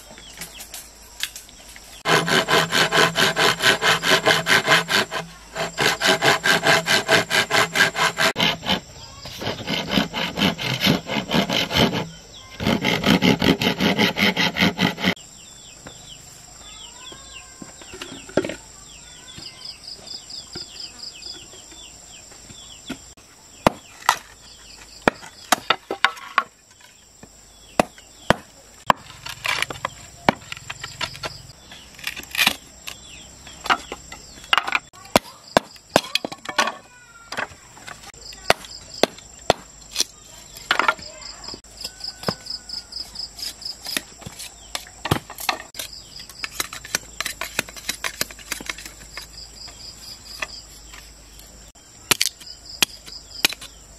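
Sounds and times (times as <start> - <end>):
crickets chirping: 0.0 - 53.9
knocks and chops on bamboo: 23.6 - 24.3, 25.0 - 26.5, 27.8 - 33.0, 33.6 - 37.6, 38.4 - 41.1, 41.8 - 42.6, 43.4 - 49.3.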